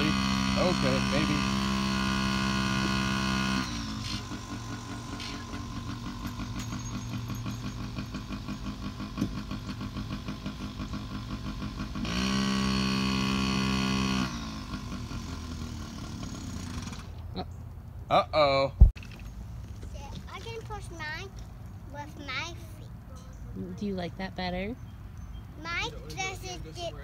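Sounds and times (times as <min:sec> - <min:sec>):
small two-stroke engine revving: 0:00.0 - 0:17.6.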